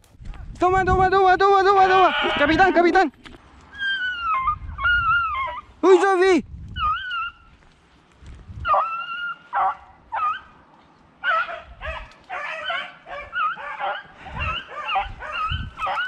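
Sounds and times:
beagles yelping and baying: 0:03.7 - 0:07.8, 0:08.6 - 0:10.6, 0:11.2 - 0:16.0.

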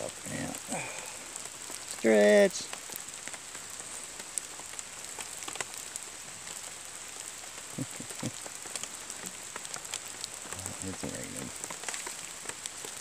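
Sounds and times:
raindrops ticking: 0:00.0 - 0:13.0
steady rain hiss: 0:00.0 - 0:13.0.

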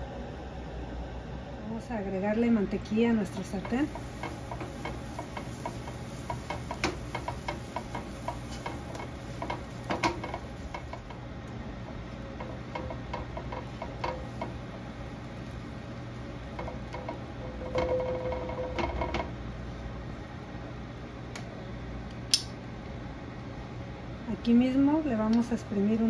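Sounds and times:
steady low hum: 0:00.0 - 0:26.0
butter crackling in a frying pan: 0:02.9 - 0:19.6
spatula spreading butter: 0:03.4 - 0:11.2.

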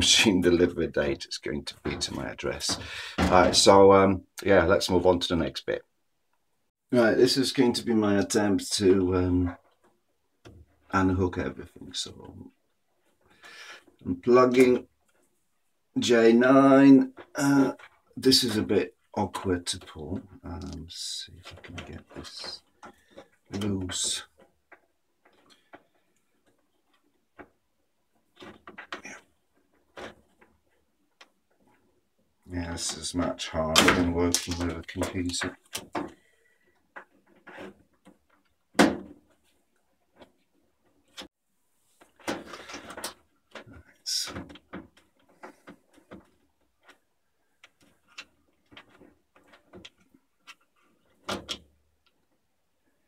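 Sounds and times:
plastic parts clicking and rustling: 0:19.6 - 0:41.3, 0:41.9 - 0:53.0
plastic clatters: 0:33.1 - 0:41.3, 0:41.9 - 0:53.0.

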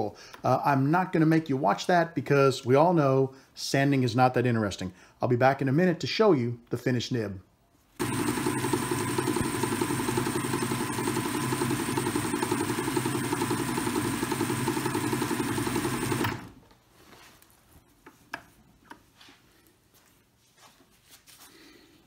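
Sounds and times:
metal lathe running: 0:08.0 - 0:16.5.

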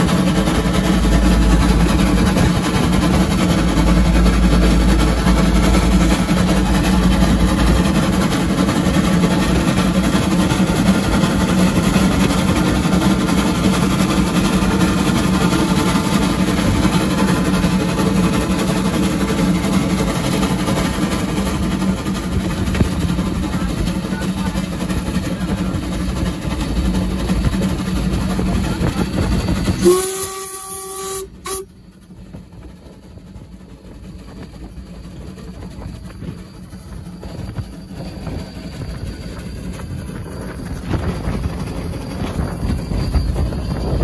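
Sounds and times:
steam locomotive rumbling: 0:00.0 - 0:44.0
steam whistle blasts: 0:29.7 - 0:31.8.

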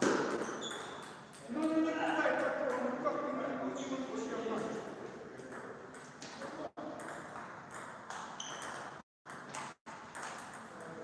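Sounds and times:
table tennis ball bouncing: 0:00.0 - 0:03.0, 0:05.4 - 0:11.0.

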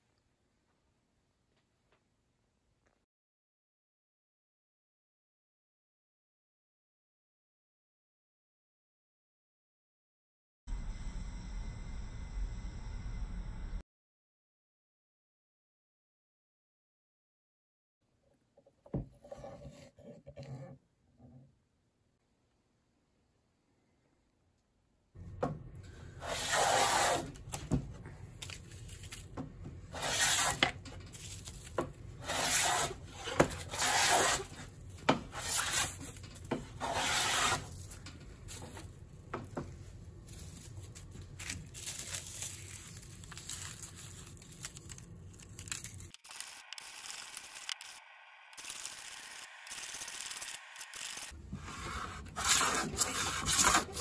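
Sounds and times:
hand plane rasping through wood: 0:32.2 - 0:34.4, 0:36.8 - 0:37.6.

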